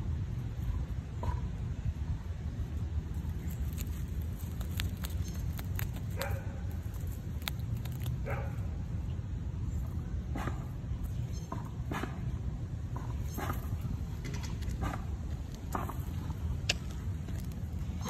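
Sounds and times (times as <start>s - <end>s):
steady low rumble: 0.0s - 18.0s
squirrel gnawing clicks: 3.1s - 8.3s
distant dog barking: 6.1s - 6.7s, 8.2s - 8.8s.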